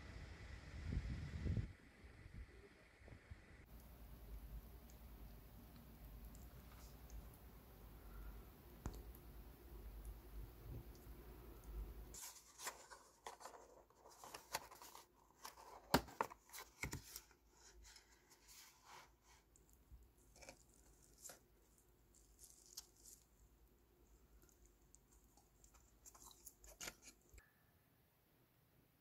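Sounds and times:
cardboard flaps scraping and crinkling: 12.2 - 19.1.

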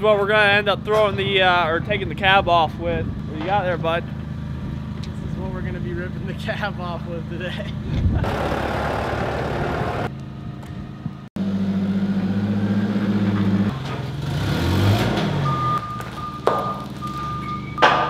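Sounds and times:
tractor and forklift engines running: 0.0 - 18.0
reversing alarm beeping: 15.4 - 18.0.

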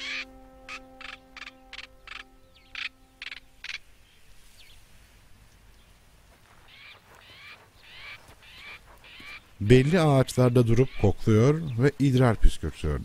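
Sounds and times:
bird chirping calls falling in pitch: 0.0 - 4.2
bird harsh rasping calls: 0.0 - 4.2, 6.7 - 11.8.

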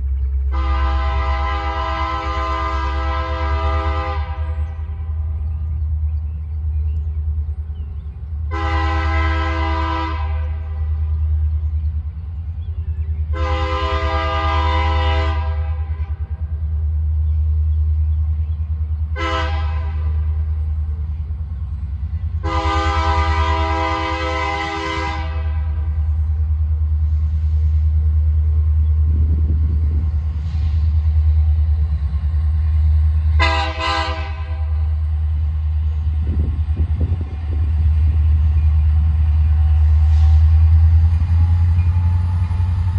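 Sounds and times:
low engine rumble: 0.0 - 42.9
locomotive air horn: 0.5 - 4.7, 8.5 - 11.0, 13.3 - 16.2, 19.1 - 20.4, 22.4 - 26.0, 33.3 - 35.0.

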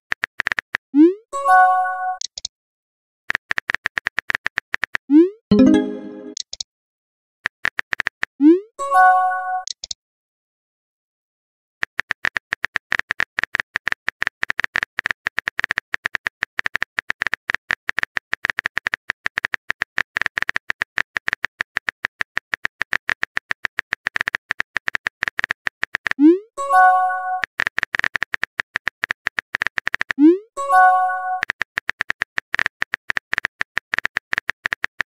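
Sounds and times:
synthetic keyboard clicks: 2.2 - 2.5, 3.3 - 6.6, 9.6 - 10.0, 11.8 - 35.0.

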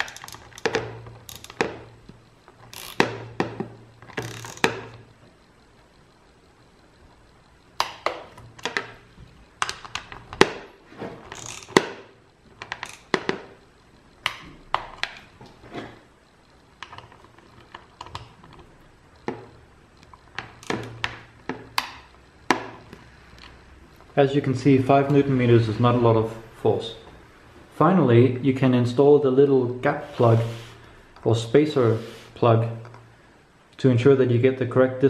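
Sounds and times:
torque wrench clicking: 0.0 - 24.1.

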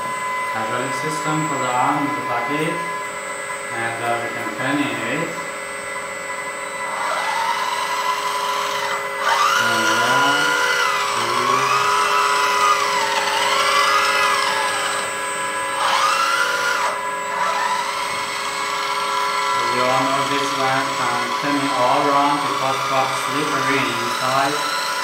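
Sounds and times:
electric hydraulic pump whine: 0.0 - 25.0.

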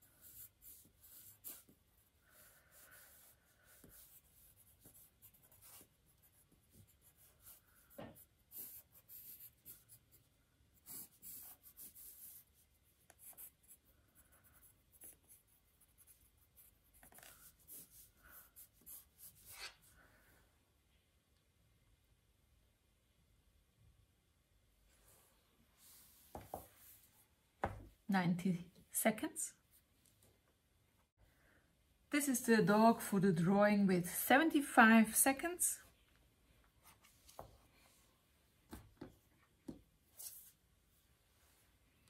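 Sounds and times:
pen scratching on paper: 0.0 - 19.7.

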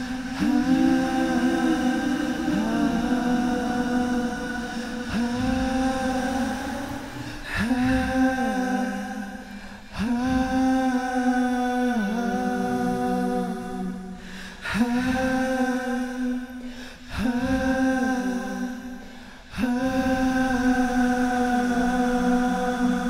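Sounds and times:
solo voice singing held notes: 0.0 - 23.0.

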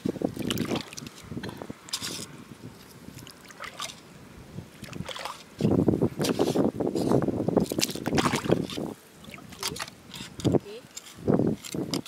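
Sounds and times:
seawater sloshing and splashing: 0.3 - 4.1, 4.7 - 6.6, 7.6 - 10.4
metal hook stirring mud: 5.0 - 12.0.

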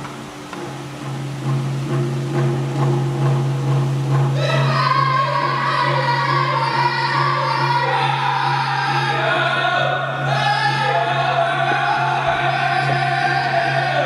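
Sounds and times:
hand drum steady beat: 0.0 - 9.3
low hum: 0.0 - 14.0
man singing in wavering voice: 4.4 - 14.0.

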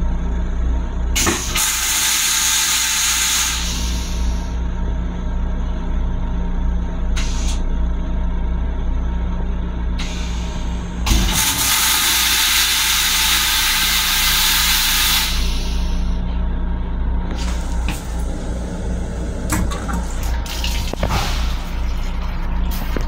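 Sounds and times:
toilet flushing: 11.1 - 15.4, 17.4 - 23.0
low hum: 15.3 - 23.0.

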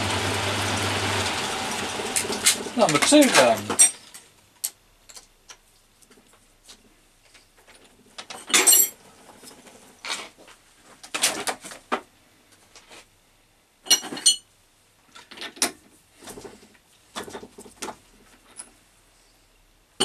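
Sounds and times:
metal tools knocking and clinking: 2.9 - 4.1.

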